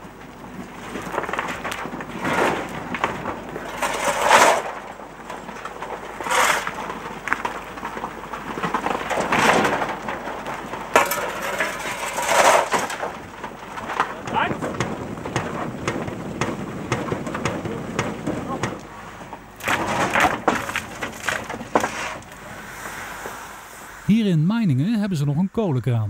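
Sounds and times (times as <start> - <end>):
coal clattering: 0.0 - 23.5
shovel scraping coal: 0.8 - 15.0, 17.1 - 23.9.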